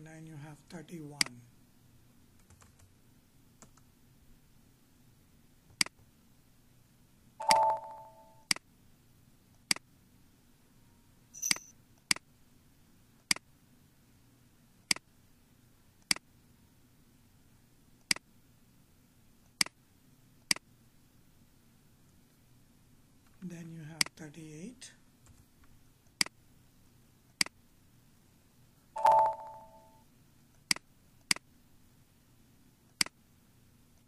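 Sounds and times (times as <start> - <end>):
computer mouse clicks: 3.6 - 3.9, 5.7 - 6.0, 27.3 - 27.6, 32.9 - 33.2
high electronic beep: 7.4 - 8.4, 29.0 - 30.0
electronic chime: 7.4 - 8.5, 29.0 - 30.0.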